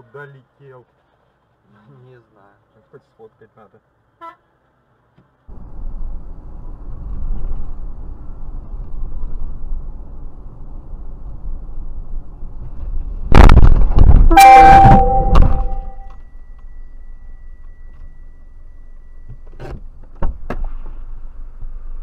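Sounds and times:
car engine and road rumble: 0.0s - 22.0s
ringing tone: 14.3s - 16.2s.

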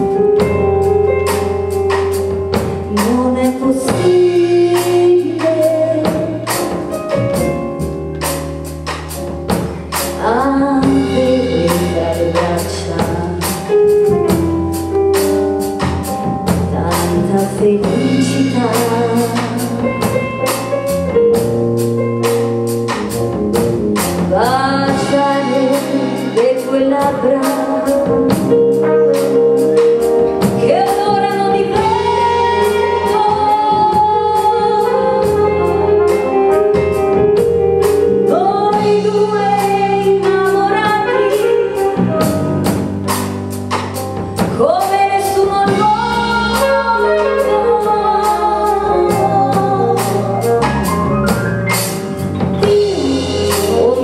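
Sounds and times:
drum kit beat: 0.0s - 54.0s
woman singing: 2.8s - 7.6s, 10.0s - 14.4s, 16.5s - 20.3s, 24.2s - 29.4s, 30.4s - 36.9s, 37.8s - 42.9s, 44.4s - 50.6s, 52.6s - 54.0s.

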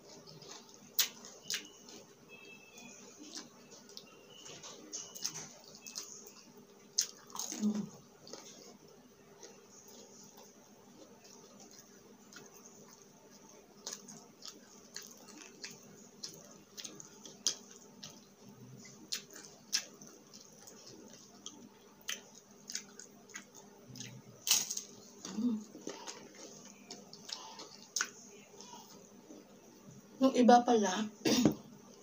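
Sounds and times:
crunching and chewing chips: 0.0s - 28.8s.

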